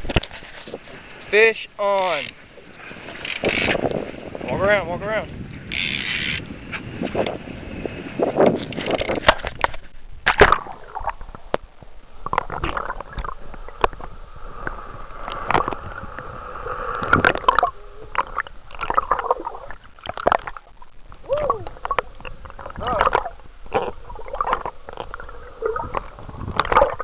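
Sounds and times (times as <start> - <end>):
muffled underwater water sloshing: 2.0 - 5.8, 6.4 - 27.0
water splashes: 8.3 - 27.0.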